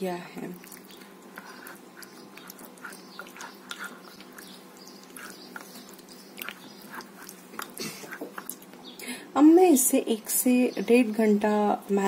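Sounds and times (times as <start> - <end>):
spoon stirring wet food in bowl: 0.3 - 8.9.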